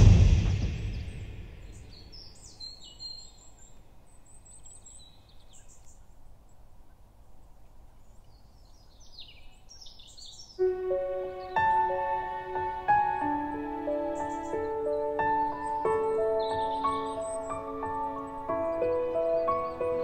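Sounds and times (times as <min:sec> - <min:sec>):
music: 0:00.0 - 0:01.7, 0:10.6 - 0:20.0
faint background noise: 0:00.0 - 0:20.0
birds chirping: 0:08.0 - 0:20.0.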